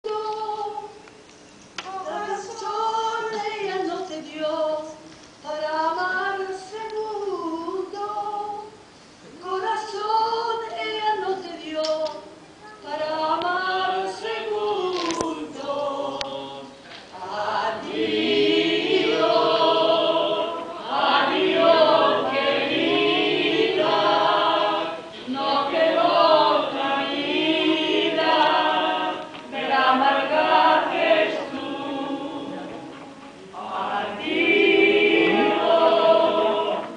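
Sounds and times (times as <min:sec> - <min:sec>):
group singing unaccompanied: 0:13.0 - 0:36.9.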